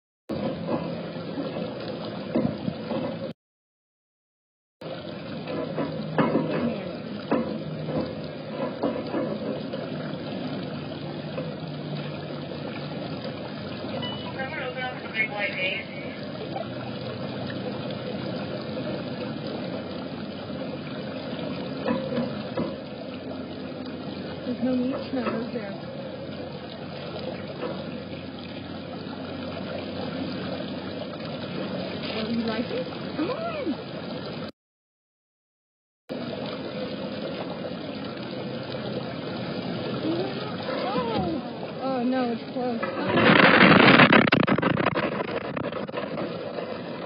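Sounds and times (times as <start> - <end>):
waterfall pouring into pond: 4.8 - 25.7, 36.1 - 47.0.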